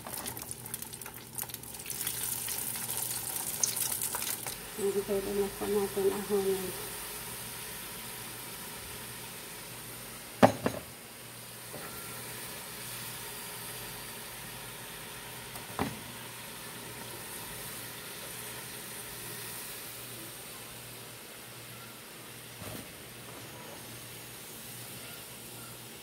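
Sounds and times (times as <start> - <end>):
potatoes sizzling in hot oil: 0.0 - 10.4, 11.2 - 23.2, 23.8 - 25.0.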